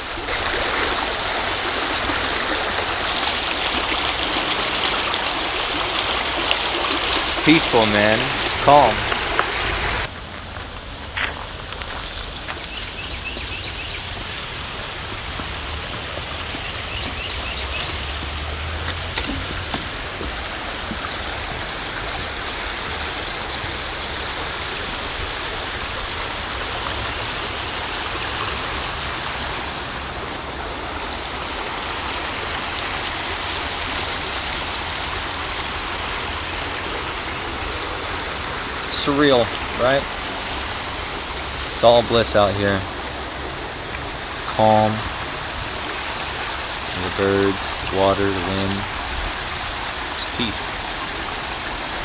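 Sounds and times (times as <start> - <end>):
creek water rushing: 0.0 - 52.0
bird chirps: 12.5 - 14.4, 16.2 - 18.3.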